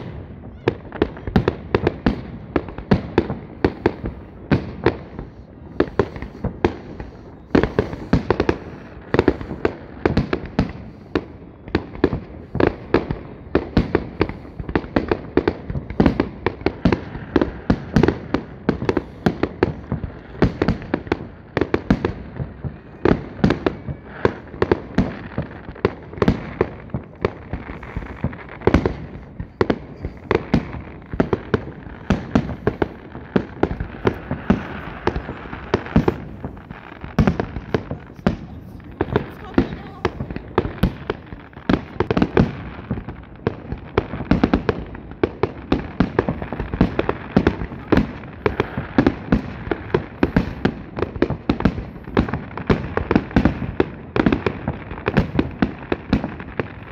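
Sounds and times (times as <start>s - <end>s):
firework shells bursting: 17.8s - 44.8s.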